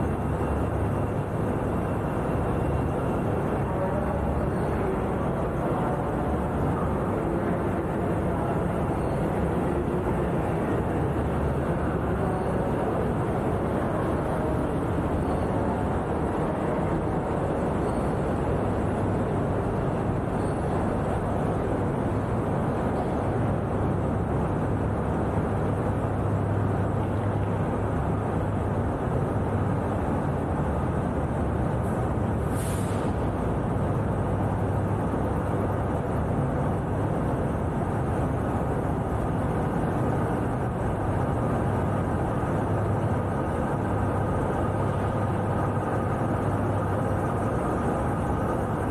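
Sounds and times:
short hiss: 32.5 - 33.2.

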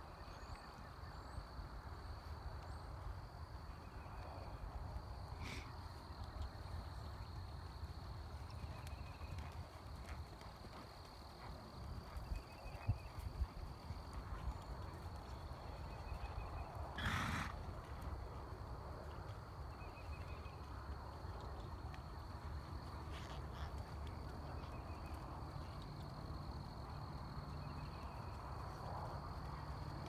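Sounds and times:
horse trotting on sand: 6.2 - 16.4.

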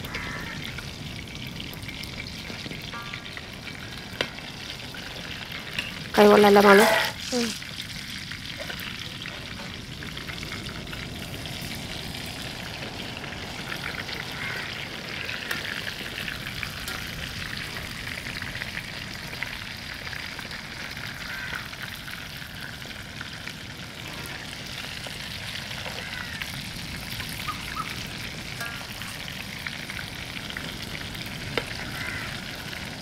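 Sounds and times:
chicken deep-frying in hot oil: 0.0 - 33.0.

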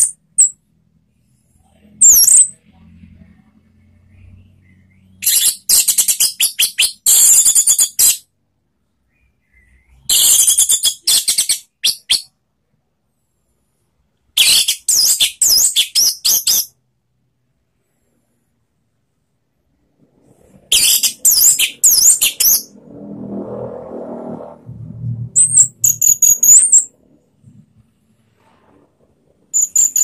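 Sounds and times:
thrush singing warbles and trills: 20.0 - 27.6.

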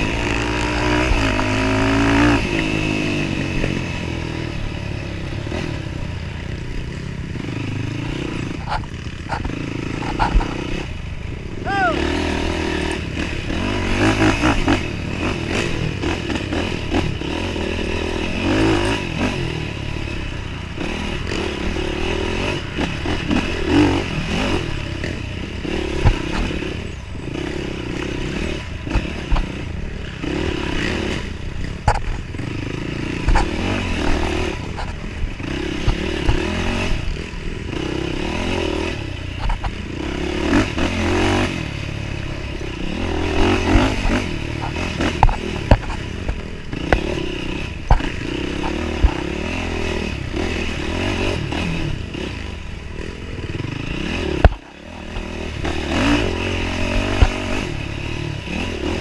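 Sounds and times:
knocks and clatter over rough trail: 0.0 - 59.0
engine revving hard: 53.5 - 59.0.

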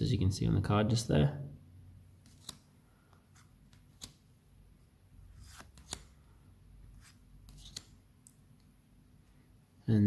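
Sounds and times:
sharp card snaps: 2.2 - 2.7, 3.7 - 4.2, 5.5 - 6.2, 7.5 - 8.4
cards sliding through a stack: 2.2 - 4.3, 5.3 - 8.1.

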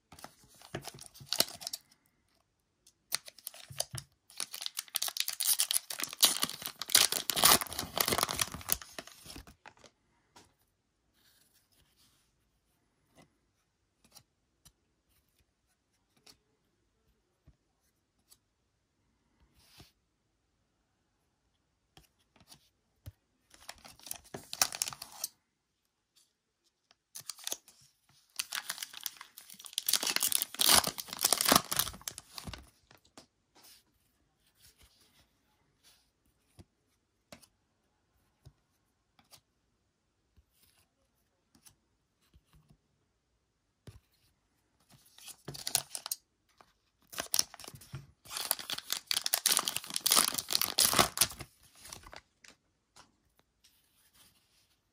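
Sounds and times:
wrapper crinkling and tearing: 3.1 - 9.9, 23.7 - 25.3, 27.2 - 27.6, 28.4 - 33.0, 45.5 - 46.2, 47.1 - 52.3.

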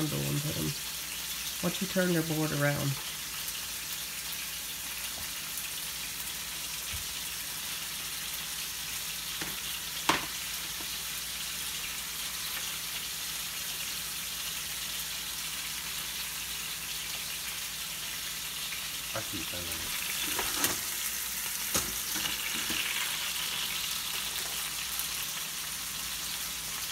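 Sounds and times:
meat sizzling in a skillet: 0.0 - 26.9.

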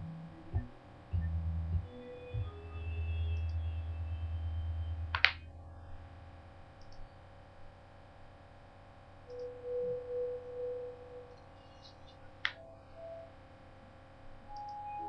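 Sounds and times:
low hum: 0.0 - 15.0
sharp click: 5.1 - 5.4.

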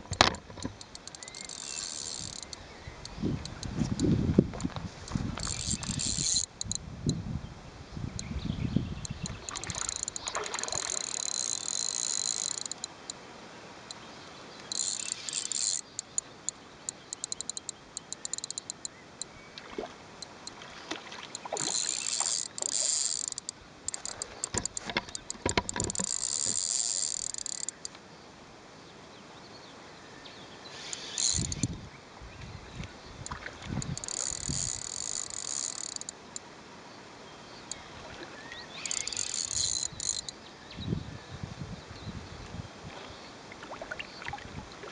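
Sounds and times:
insects buzzing: 0.0 - 4.4, 5.1 - 7.2, 7.9 - 28.0, 30.7 - 31.8, 33.2 - 40.5.

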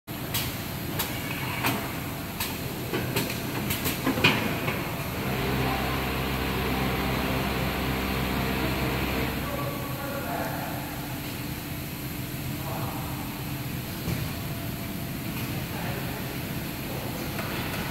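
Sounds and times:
motor hum: 5.0 - 10.0.

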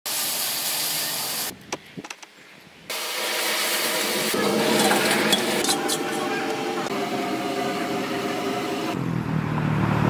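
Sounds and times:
loud cooking hiss: 0.1 - 1.5.

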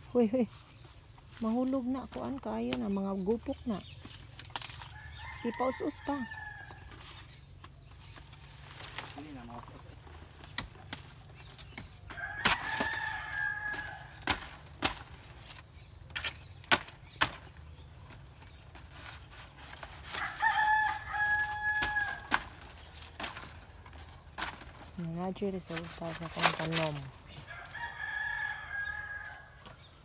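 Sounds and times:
rooster crowing: 12.2 - 14.2, 20.2 - 22.3, 27.4 - 29.6.

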